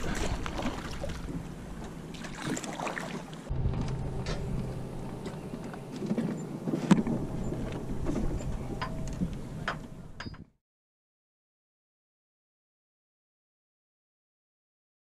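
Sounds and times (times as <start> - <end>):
low hum: 3.5 - 10.6.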